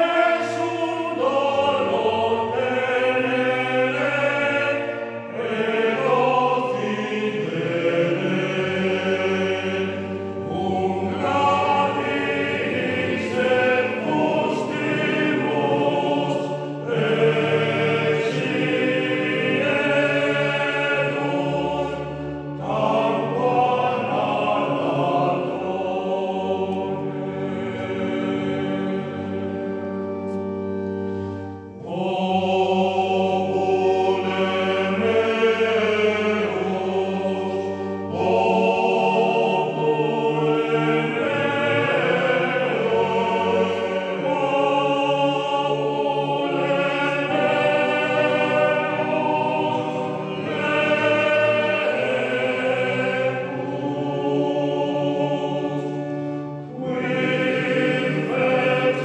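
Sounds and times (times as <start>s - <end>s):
male choir singing unaccompanied: 0.0s - 59.0s.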